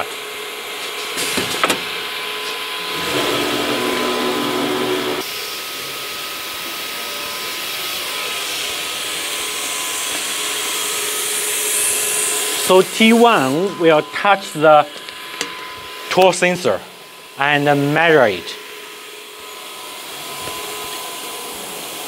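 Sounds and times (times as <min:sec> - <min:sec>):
motor whine: 0:02.8 - 0:06.5.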